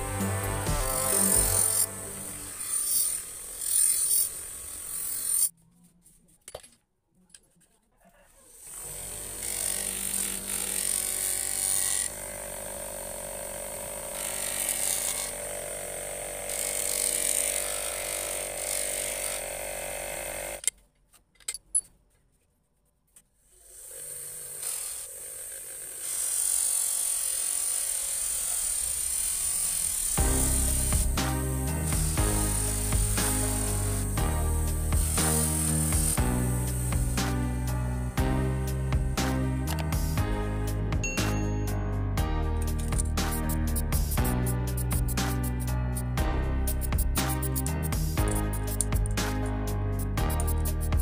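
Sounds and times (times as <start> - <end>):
bench grinder motor hum: 0.0 - 5.5, 8.5 - 20.6, 23.6 - 37.6
knife grinding hiss: 31.8 - 37.7.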